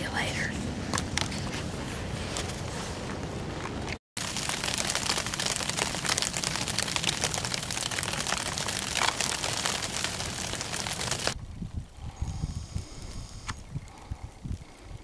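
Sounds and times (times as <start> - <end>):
wind noise: 0.0 - 15.0
sleet and rain pattering: 3.6 - 11.9, 12.7 - 15.0.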